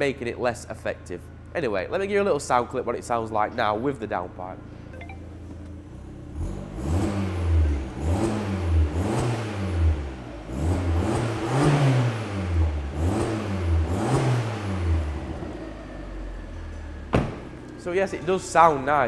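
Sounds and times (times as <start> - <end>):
car engine revving: 5.4 - 19.0.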